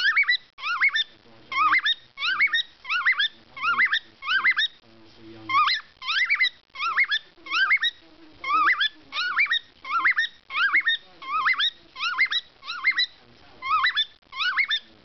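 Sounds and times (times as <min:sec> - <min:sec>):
cockatiel whistling: 0:00.0 - 0:04.8, 0:05.5 - 0:14.9.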